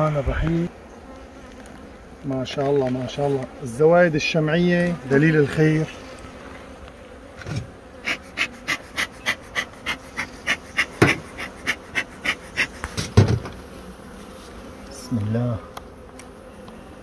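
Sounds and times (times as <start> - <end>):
faint hum of bees: 0.0 - 17.0
bellows smoker puffing: 8.0 - 13.6.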